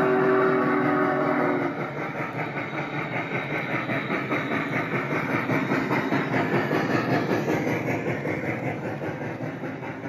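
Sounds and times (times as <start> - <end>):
model steam locomotive chuffing: 0.0 - 10.0.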